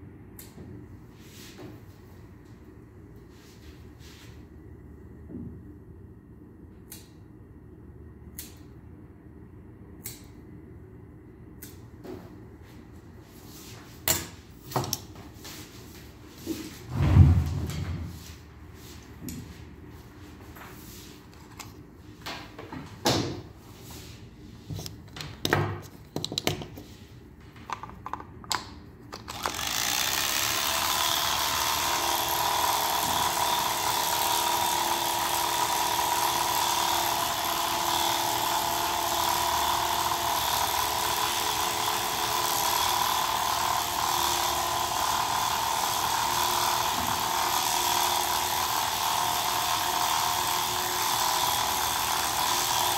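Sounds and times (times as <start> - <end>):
handling clicks and knocks: 24.8 - 26.8
electric hair clippers buzzing: 29.3 - 52.9.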